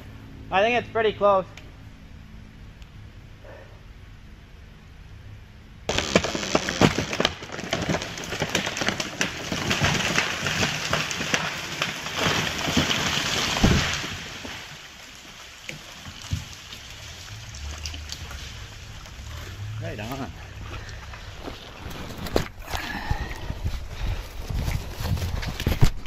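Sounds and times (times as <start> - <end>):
heavy thud of tree hitting ground: 5.9 - 14.8
branches breaking: 5.9 - 26.0
debris rustling: 5.9 - 26.0
tree trunk cracking and crashing: 5.9 - 26.0.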